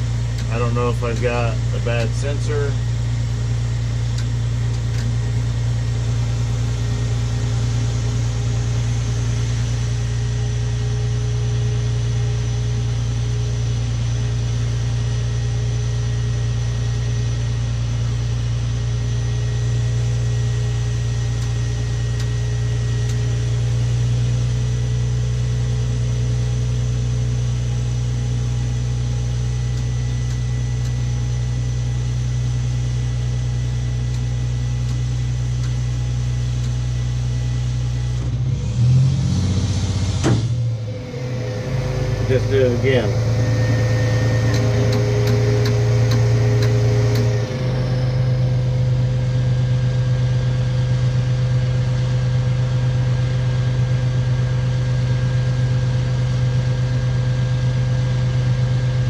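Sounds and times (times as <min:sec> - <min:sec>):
faint steady whine: 0:00.0 - 0:24.4, 0:39.7 - 0:50.7
truck engine low hum: 0:00.0 - 0:59.0.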